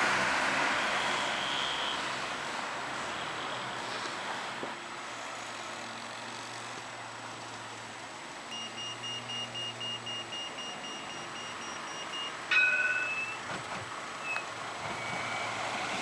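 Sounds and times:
traffic noise: 0:00.0 - 0:16.0
tram humming: 0:10.7 - 0:16.0.

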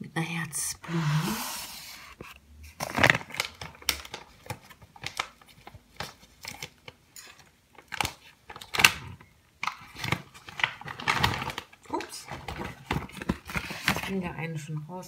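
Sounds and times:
paper bag crinkling: 0:02.7 - 0:09.0, 0:09.8 - 0:14.2.

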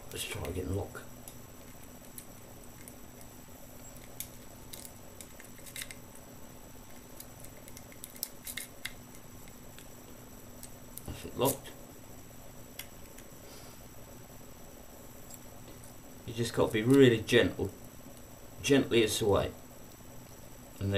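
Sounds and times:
lock pick clicking and scraping: 0:07.2 - 0:09.2.

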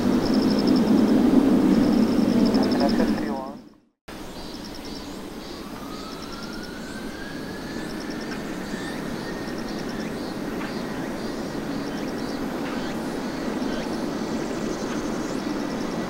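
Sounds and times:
turbine whine rising: 0:00.0 - 0:03.6
jet engines rushing: 0:00.0 - 0:03.7, 0:05.0 - 0:16.0.

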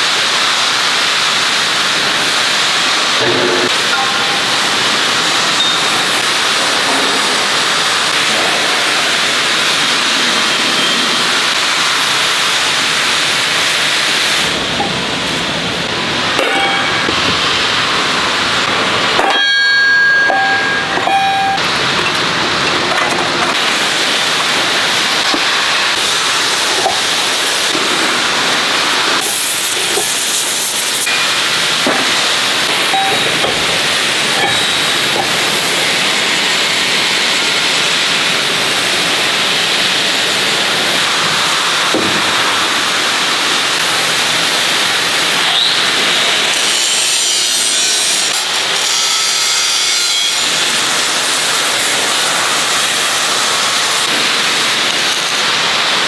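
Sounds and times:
angle grinder grinding steel: 0:45.4 - 0:54.0.

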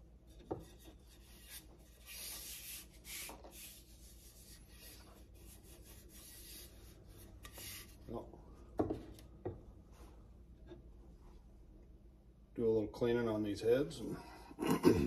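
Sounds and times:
hands rubbing wooden handle: 0:00.2 - 0:08.2.

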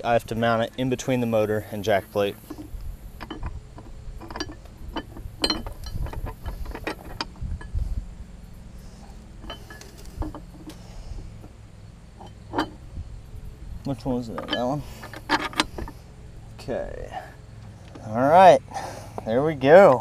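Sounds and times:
metal clinks and knocks: 0:00.0 - 0:07.9, 0:09.0 - 0:13.0, 0:13.8 - 0:16.6
low steady rumble: 0:00.0 - 0:20.0.

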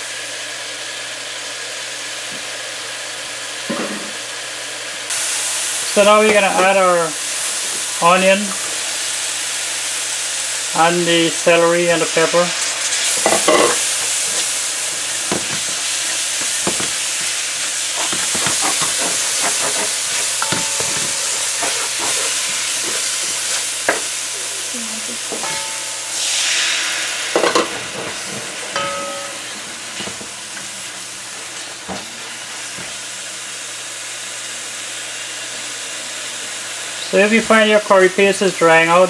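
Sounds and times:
vegetables sizzling in oil: 0:00.0 - 0:39.0
spatula scraping and knocking pot: 0:13.1 - 0:24.1, 0:25.3 - 0:26.3, 0:27.4 - 0:29.4.

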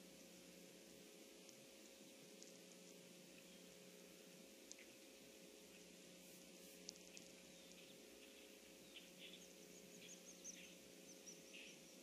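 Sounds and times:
steady low hum: 0:00.0 - 0:12.0
faint bird chirps: 0:03.3 - 0:03.8, 0:04.6 - 0:06.0, 0:06.8 - 0:12.0.

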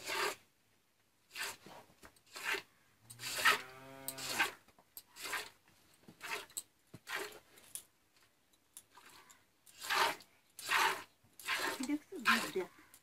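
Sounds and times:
milk squirting into a pail: 0:08.9 - 0:12.6.

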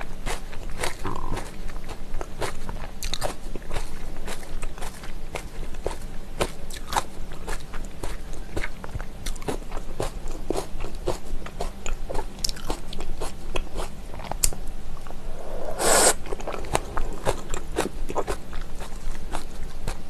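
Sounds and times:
wet chewing and crunching: 0:00.0 - 0:14.6, 0:16.2 - 0:20.0
wet slurp: 0:15.4 - 0:18.4.

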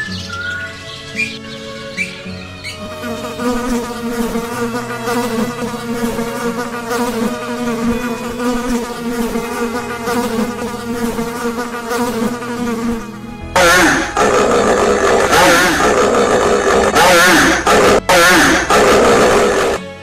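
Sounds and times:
flying insect buzzing: 0:00.9 - 0:19.8.

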